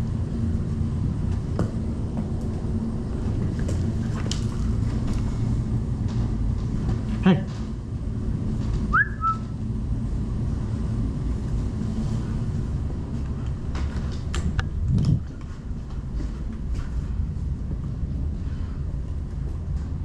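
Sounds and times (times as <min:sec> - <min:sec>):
camera handling rumble: 0:13.4 - 0:15.5.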